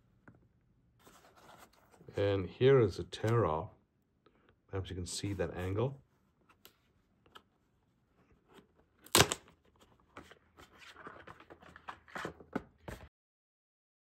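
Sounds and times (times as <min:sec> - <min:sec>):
cardboard and paper rustling: 0:01.0 - 0:02.2, 0:08.2 - 0:13.1
cardboard tear strip ripping: 0:09.0 - 0:09.5.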